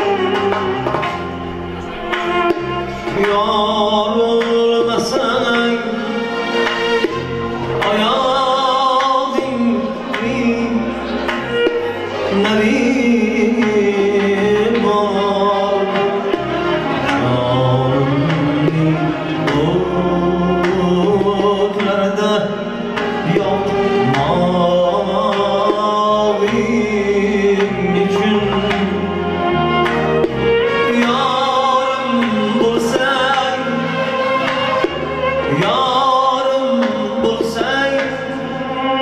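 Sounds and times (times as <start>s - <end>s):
man singing: 0.0s - 39.0s.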